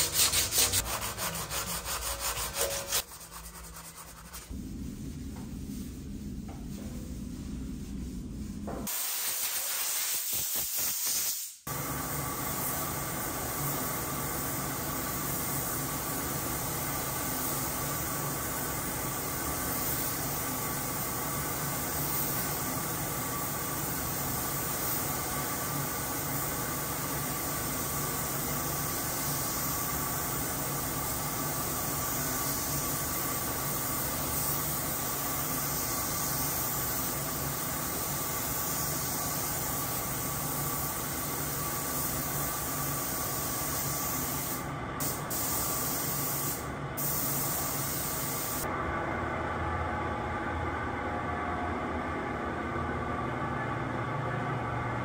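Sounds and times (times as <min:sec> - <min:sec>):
spray gun hissing: 0:08.8 - 0:11.7, 0:23.6 - 0:48.7.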